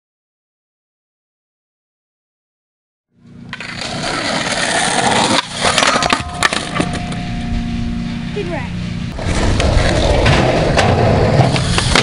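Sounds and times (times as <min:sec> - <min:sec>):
skateboard wheels rolling: 0:03.4 - 0:07.0, 0:09.2 - 0:12.0
skateboard grinding on metal rail: 0:03.5 - 0:08.3, 0:09.1 - 0:12.0.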